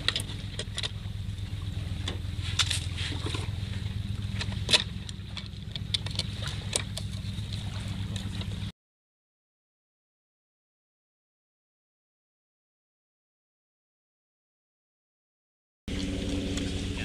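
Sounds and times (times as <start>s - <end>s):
low hum: 0.0s - 8.7s, 15.9s - 17.0s.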